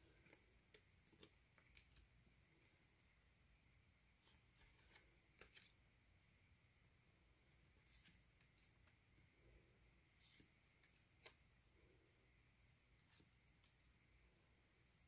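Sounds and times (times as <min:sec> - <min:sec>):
cards shuffling clicks and rustles: 0:00.1 - 0:02.8, 0:04.2 - 0:05.8.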